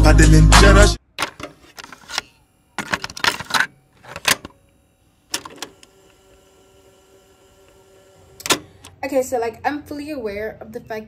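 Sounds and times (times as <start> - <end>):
clattering clicks and rustles: 1.1 - 4.6
faint steady hum: 1.2 - 11.0.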